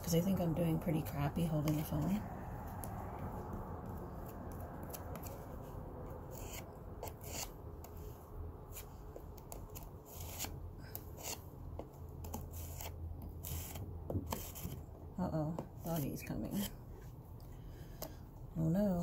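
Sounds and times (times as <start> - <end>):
faint low rumble: 0.0 - 7.0
putty knife scraping: 6.3 - 8.1, 8.7 - 14.9.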